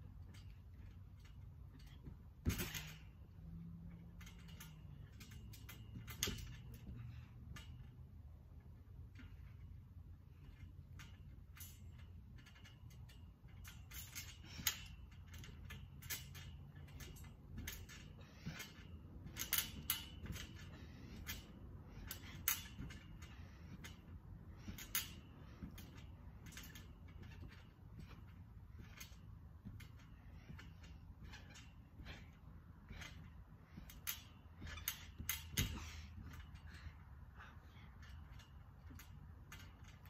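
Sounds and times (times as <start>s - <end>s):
steady low hum: 0.0s - 40.0s
trampoline springs creaking: 0.0s - 40.0s
sharp squeaks: 9.1s - 40.0s.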